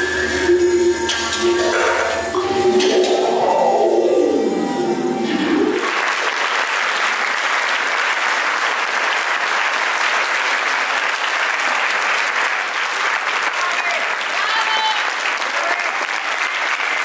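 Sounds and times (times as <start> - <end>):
music: 0.0 - 6.0
crowd clapping: 5.8 - 17.0.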